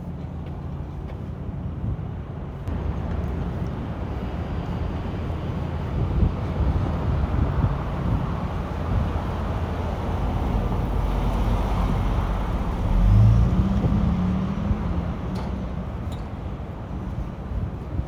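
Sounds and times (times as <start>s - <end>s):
traffic engine rumble: 0.0s - 18.0s.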